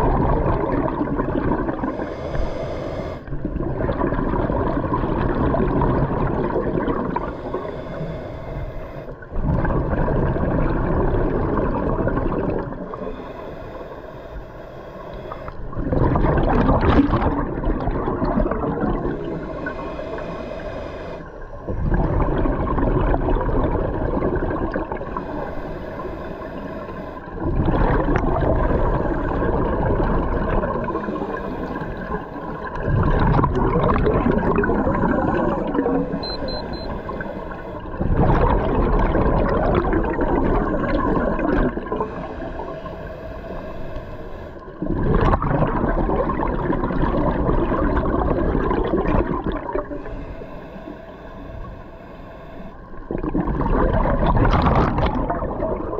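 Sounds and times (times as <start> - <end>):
exhaled bubbles rushing: 0.0 - 2.1, 3.2 - 7.7, 9.1 - 13.2, 15.5 - 19.8, 21.4 - 25.6, 26.5 - 42.8, 44.6 - 50.1, 52.9 - 55.9
diver breathing through regulator: 1.8 - 3.5, 7.2 - 9.2, 12.9 - 15.8, 19.0 - 21.9, 25.1 - 27.4, 30.8 - 33.3, 34.8 - 38.3, 39.9 - 44.8, 49.8 - 53.5.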